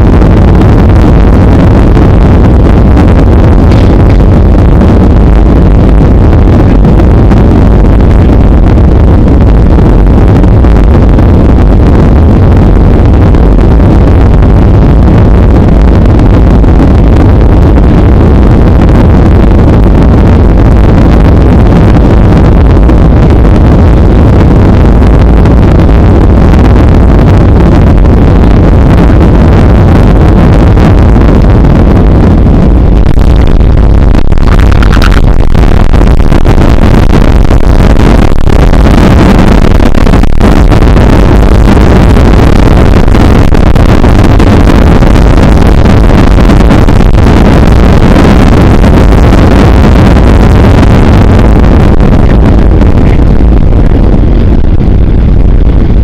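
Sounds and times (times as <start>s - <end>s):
airplane cabin engine rumble: 0.0s - 56.0s.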